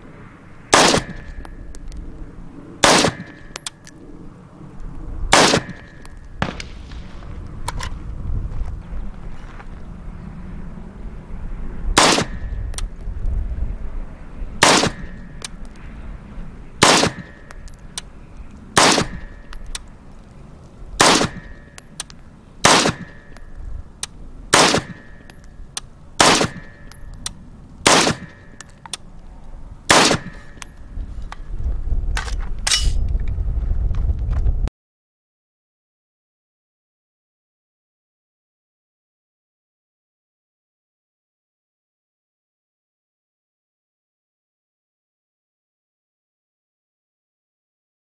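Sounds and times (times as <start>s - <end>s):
rifle shots: 0.7s - 1.4s, 2.8s - 3.7s, 5.3s - 7.2s, 12.0s - 12.5s, 14.6s - 15.2s, 16.8s - 17.5s, 18.8s - 19.4s, 21.0s - 21.6s, 22.6s - 23.4s, 24.5s - 25.2s, 26.2s - 26.9s, 27.8s - 28.6s, 29.9s - 30.6s.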